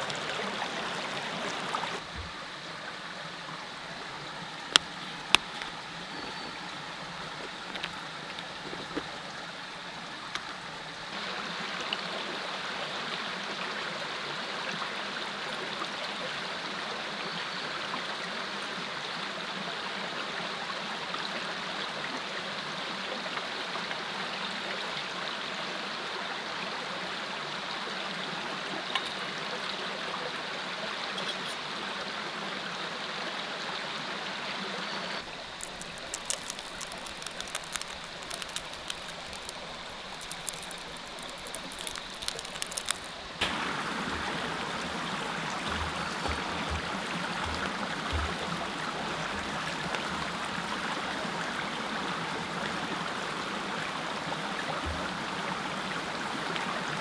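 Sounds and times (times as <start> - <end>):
creek running over rocks: 0.0 - 57.0
sharp ticks: 35.6 - 43.2.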